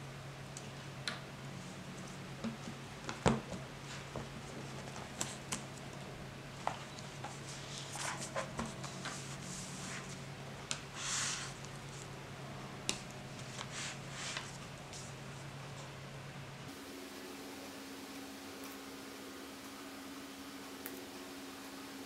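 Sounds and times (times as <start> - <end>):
paper rustling: 7.1 - 10.2.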